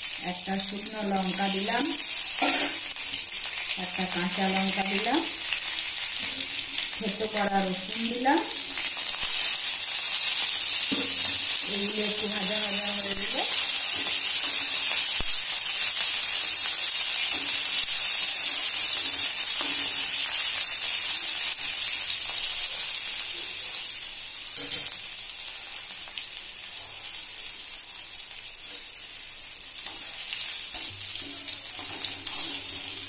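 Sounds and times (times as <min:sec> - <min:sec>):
spices sizzling in hot oil: 0:00.0 - 0:33.0
spatula stirring: 0:29.8 - 0:33.0.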